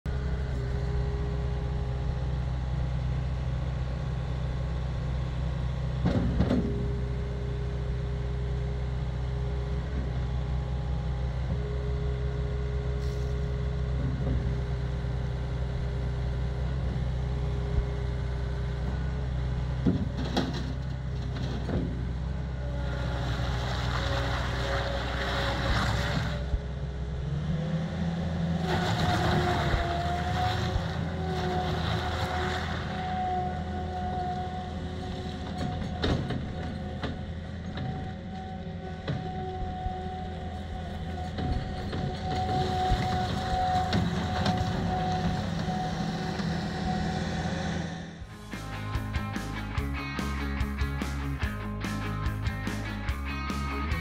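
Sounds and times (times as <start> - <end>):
diesel engine running: 0.0 - 54.0
hydraulic whine: 28.5 - 48.7.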